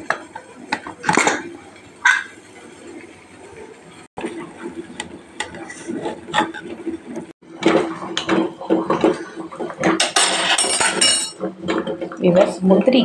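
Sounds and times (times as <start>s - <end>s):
spoon scraping metal pot: 5.4s - 6.8s.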